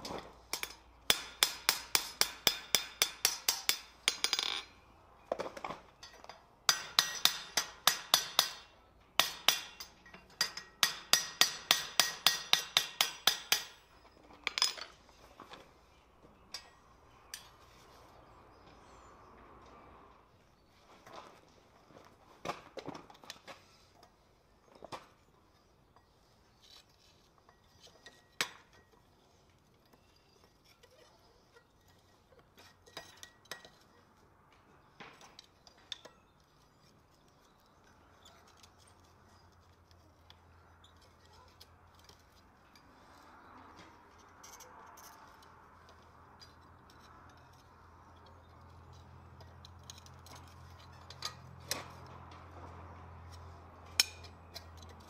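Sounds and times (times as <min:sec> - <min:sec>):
metallic clinks of tongs on iron: 0:06.0 - 0:13.8, 0:53.9 - 0:55.0.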